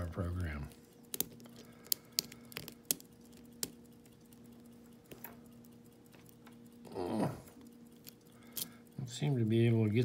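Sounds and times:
faint steady hum: 0:00.0 - 0:10.0
metallic clicks of lock picking: 0:07.8 - 0:08.9.

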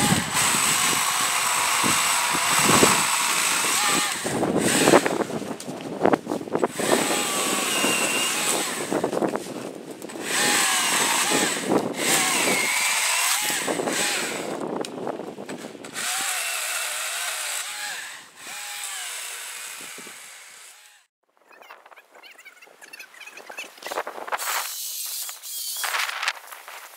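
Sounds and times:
electric chainsaw cutting branches: 0:00.0 - 0:21.1.

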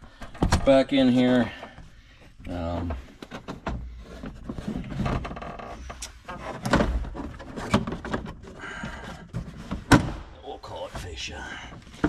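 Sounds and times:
plastic panel scraping and rubbing: 0:02.5 - 0:10.0.

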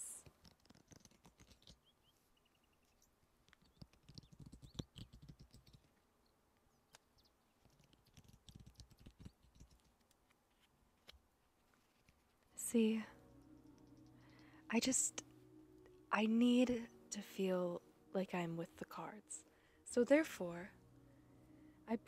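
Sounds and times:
cards being shuffled: 0:00.1 - 0:01.9, 0:03.4 - 0:05.9, 0:06.9 - 0:12.6.

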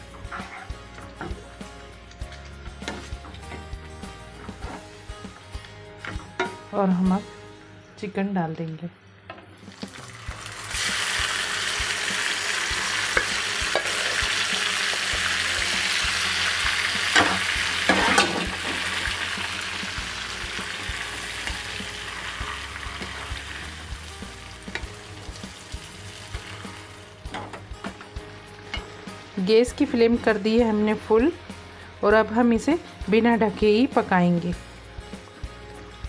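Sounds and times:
chicken sizzling in hot oil: 0:09.6 - 0:27.3.

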